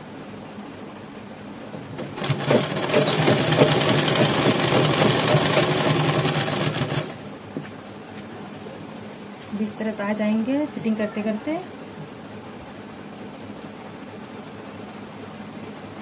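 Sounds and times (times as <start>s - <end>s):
sewing machine stitching: 2.0s - 7.2s.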